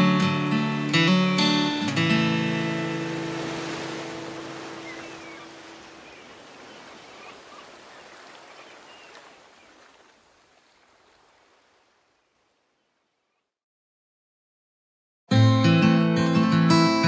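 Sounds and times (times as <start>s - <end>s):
acoustic guitar chord: 0.0s - 5.6s.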